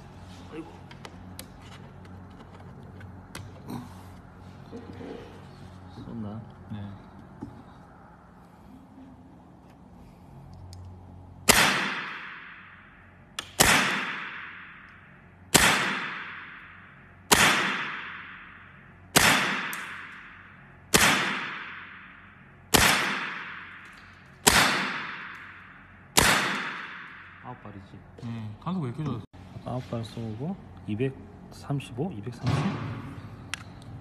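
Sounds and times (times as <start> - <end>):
air rifle shots echoing: 11.4 - 27.4.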